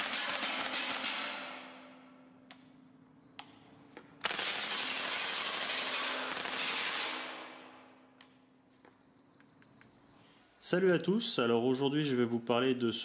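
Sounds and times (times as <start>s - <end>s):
airsoft gun full-auto burst: 0.0s - 1.5s, 4.2s - 7.7s
airsoft gun single shots: 0.0s - 1.8s.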